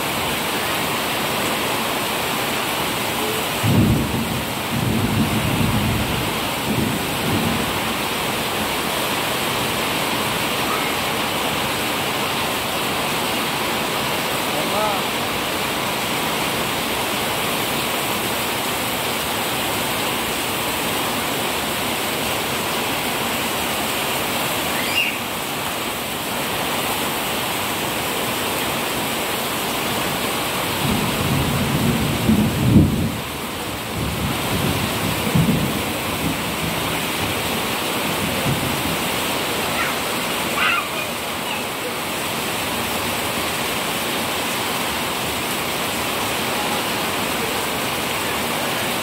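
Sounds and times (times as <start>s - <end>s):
heavy rain falling: 0.0s - 49.0s
thunder rumbling: 3.5s - 8.1s, 30.8s - 37.5s, 38.1s - 39.1s.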